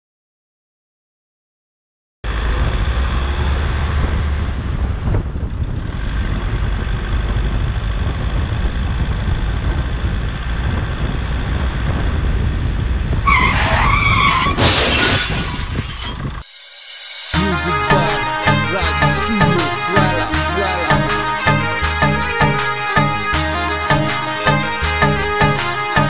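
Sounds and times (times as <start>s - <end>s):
vehicle rumble: 2.2s - 16.5s
loud wavering screech: 13.3s - 17.4s.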